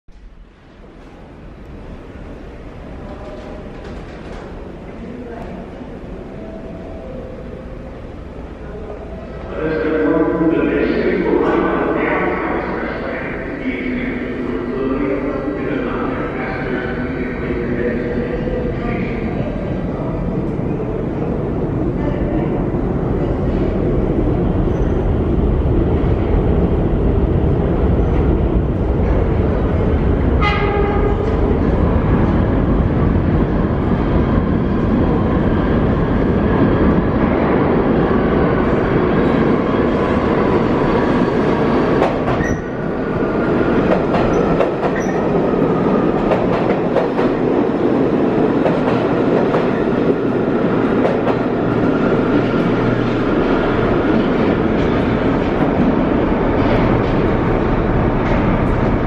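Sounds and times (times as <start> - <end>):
high train whine: 0.1 - 59.0
subway train rumbling on rails: 0.1 - 59.0
train horn blast: 30.4 - 31.3.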